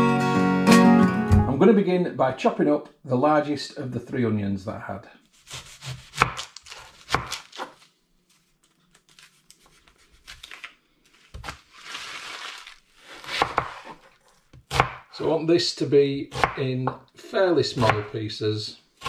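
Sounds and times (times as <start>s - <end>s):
onion skin crinkling: 5.3s - 14.7s
knife chopping on wooden board: 5.5s - 7.8s, 13.2s - 15.1s, 16.3s - 17.0s, 17.8s - 18.1s.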